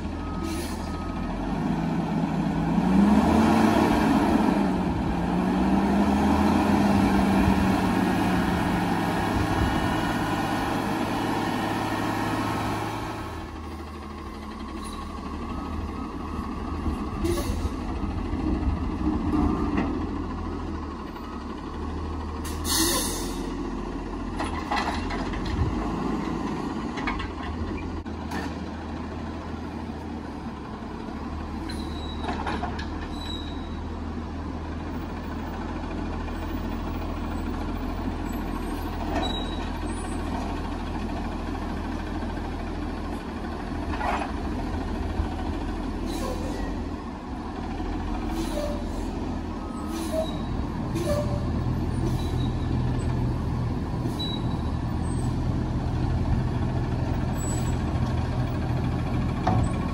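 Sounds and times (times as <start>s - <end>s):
air brake hisses: 0.4s - 0.9s, 22.4s - 23.5s, 48.3s - 49.2s, 49.8s - 51.4s.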